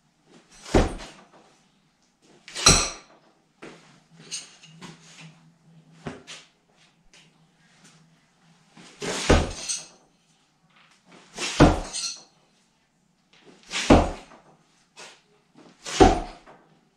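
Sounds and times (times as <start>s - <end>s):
knives thunking into wood: 2.5s - 3.1s, 11.4s - 12.2s, 13.7s - 14.4s, 15.9s - 16.4s.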